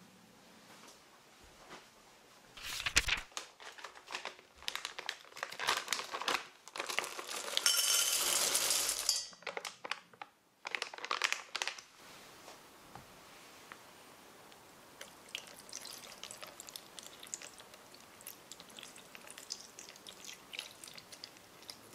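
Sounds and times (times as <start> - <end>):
plastic bag crinkling: 2.6 - 11.9
wafers pouring into metal pot: 6.8 - 9.3.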